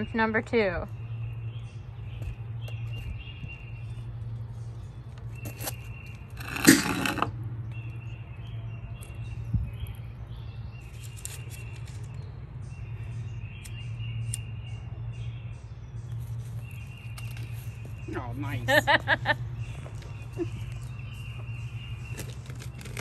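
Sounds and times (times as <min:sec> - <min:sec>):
bird calling: 0:16.1 - 0:23.0.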